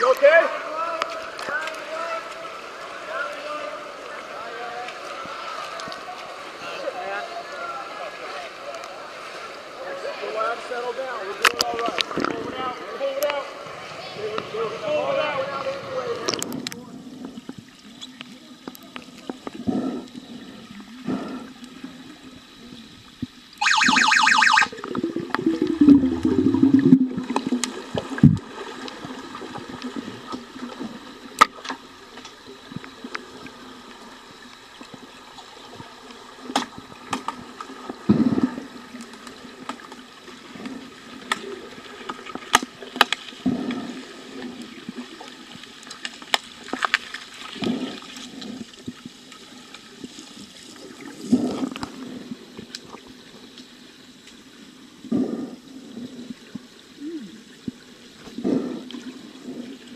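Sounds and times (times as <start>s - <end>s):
underwater bubble noise: 16.3s - 59.9s
loud buzzing tone: 23.6s - 24.8s
gurgle of bubbles: 24.6s - 31.6s.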